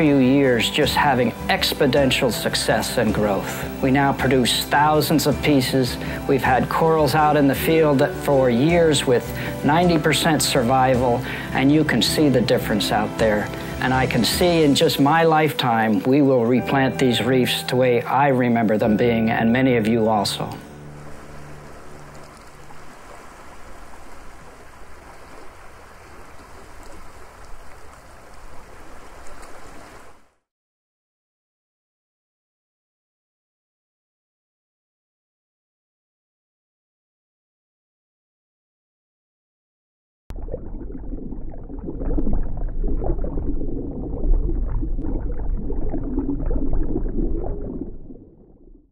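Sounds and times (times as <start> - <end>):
rushing water: 20.2 - 30.4
air bubbles gurgling underwater: 40.3 - 48.9.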